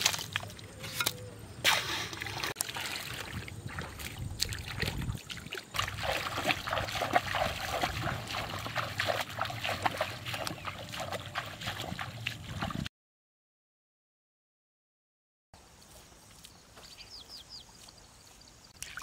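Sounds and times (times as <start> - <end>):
footsteps splashing through water: 0.0 - 0.7, 1.7 - 12.9, 18.8 - 19.0.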